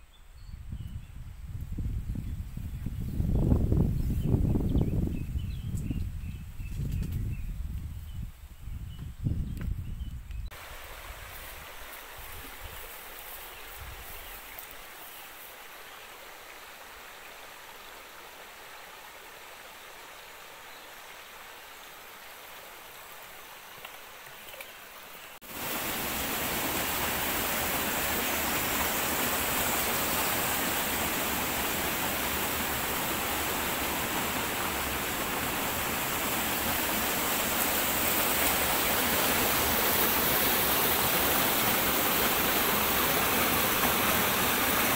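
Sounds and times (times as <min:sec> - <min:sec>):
stream water rushing over rocks: 0:10.5 - 0:13.6, 0:14.6 - 0:44.9.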